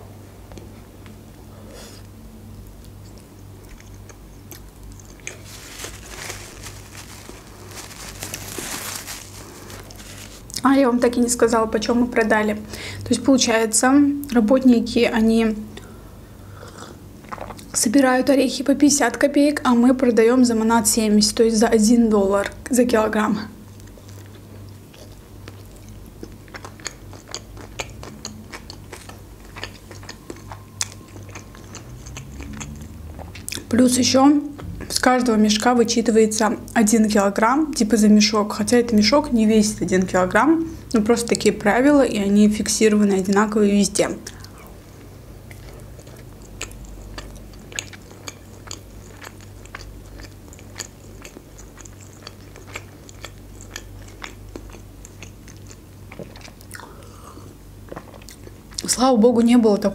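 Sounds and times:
faint low hum: 0:00.0 - 0:59.9
chewing soft wrap: 0:00.6 - 0:10.7, 0:23.7 - 0:33.7, 0:44.2 - 0:57.0, 0:57.8 - 0:58.9
paper napkin rustling: 0:05.0 - 0:10.5
wet mouth clicks: 0:26.7 - 0:33.7.

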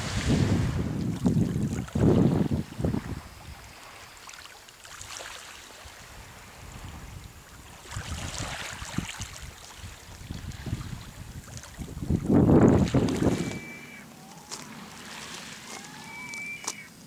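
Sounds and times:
wind buffeting microphone: 0:00.0 - 0:04.2, 0:05.9 - 0:13.8
sea water lapping: 0:00.0 - 0:17.0.

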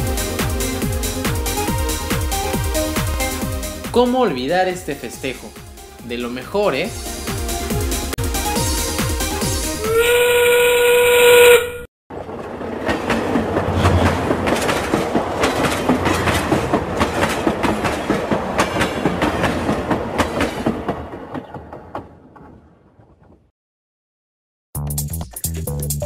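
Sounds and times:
train whistle: 0:09.8 - 0:11.9
train wheels clacking over rails: 0:12.2 - 0:22.5.

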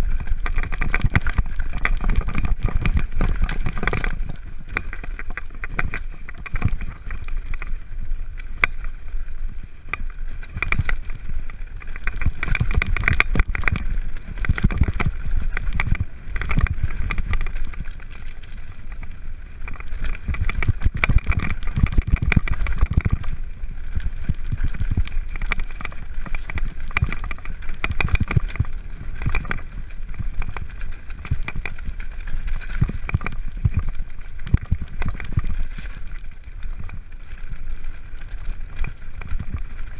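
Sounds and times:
bike frame and chain rattling: 0:00.0 - 0:39.9
tyres crunching over stones: 0:00.0 - 0:39.9.

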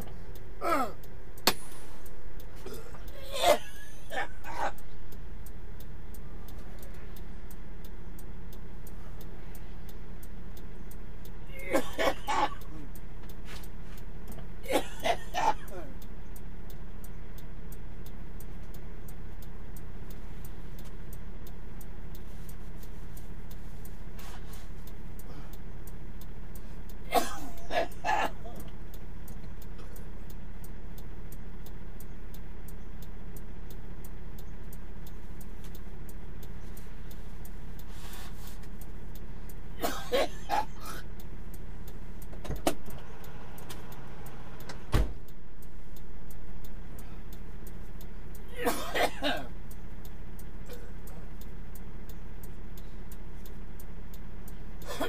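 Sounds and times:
sharp clicks: 0:28.6 - 0:37.9.

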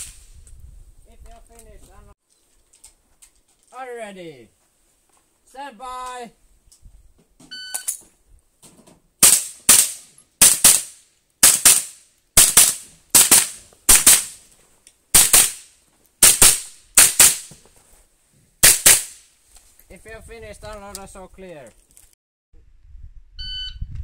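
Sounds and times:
shot timer beep: 0:07.6 - 0:07.9, 0:23.4 - 0:23.8
rifle shots cracking: 0:09.2 - 0:14.4, 0:15.2 - 0:17.5, 0:18.6 - 0:19.2.

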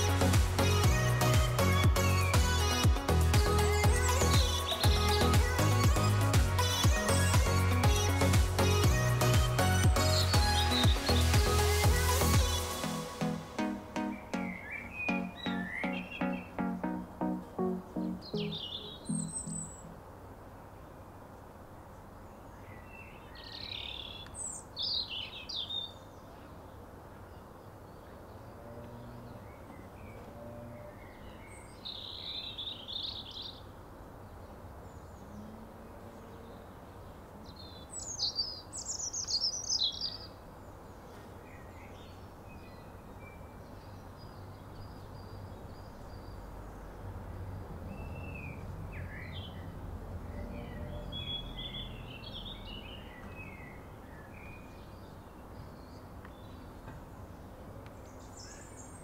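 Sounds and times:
songbird singing: 0:00.0 - 0:21.0, 0:22.0 - 0:59.0
bird chirps: 0:13.6 - 0:20.1.

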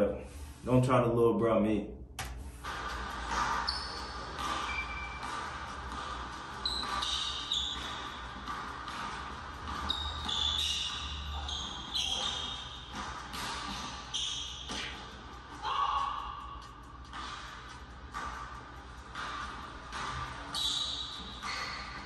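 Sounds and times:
sneakers squeaking on court: 0:02.7 - 0:15.2, 0:17.1 - 0:22.0
basketball dribbling on wooden floor: 0:02.8 - 0:13.8.

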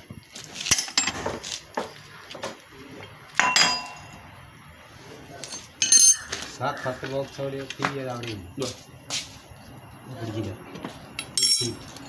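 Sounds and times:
metal parts clinking in a bucket: 0:00.5 - 0:01.4, 0:03.4 - 0:04.1, 0:05.4 - 0:06.4, 0:11.2 - 0:12.0.

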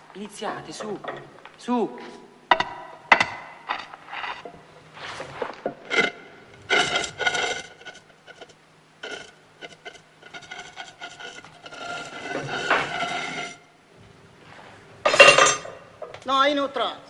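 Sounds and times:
heavy stone lid scraping: 0:02.6 - 0:13.7
stone lid squealing: 0:05.7 - 0:13.6.

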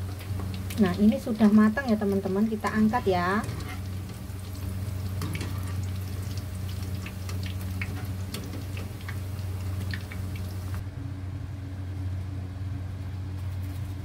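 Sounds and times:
hot oil crackling and popping: 0:00.0 - 0:10.8
steady low hum: 0:00.0 - 0:14.0.

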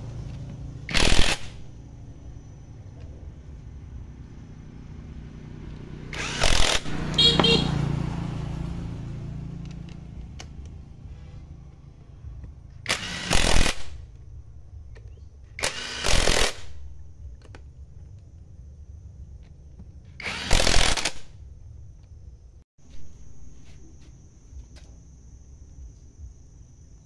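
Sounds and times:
cordless power driver running: 0:00.1 - 0:01.6, 0:05.6 - 0:07.8, 0:12.8 - 0:13.9, 0:15.6 - 0:16.7, 0:20.2 - 0:21.2.

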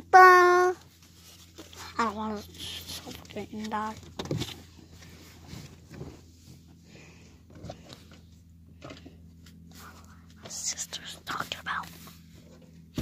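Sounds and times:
low hum inside car: 0:00.0 - 0:13.0.

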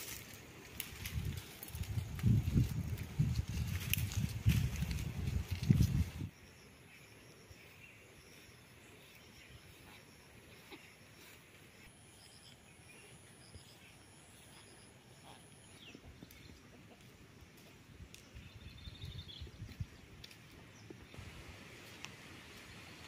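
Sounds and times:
birds chirping: 0:06.4 - 0:21.2.

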